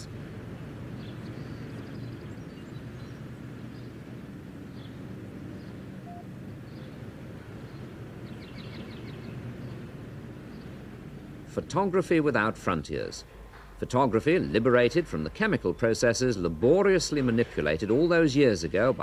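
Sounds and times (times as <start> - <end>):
low background rumble: 0.0 - 19.0
faint high chirps: 6.0 - 6.3.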